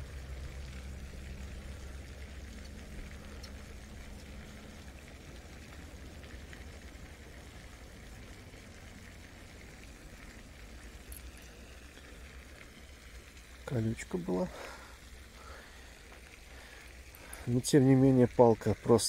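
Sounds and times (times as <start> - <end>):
faint water-like hiss: 0.0 - 19.0.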